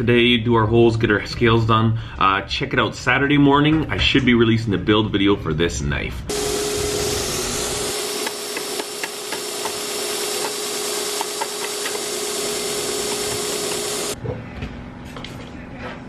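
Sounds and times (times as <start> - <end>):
belt grinder whining: 6.3 - 14.2.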